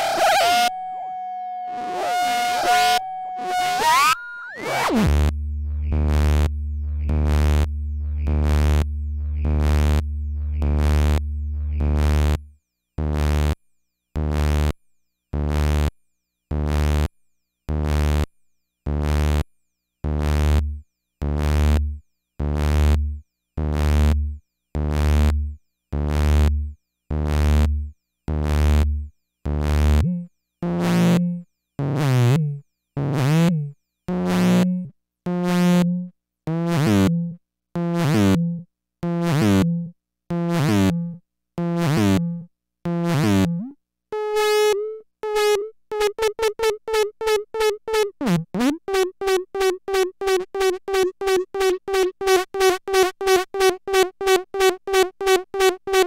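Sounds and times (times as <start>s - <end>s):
synthesizer pulsing: 0.0s - 12.2s
low synthesizer drone: 5.1s - 12.2s.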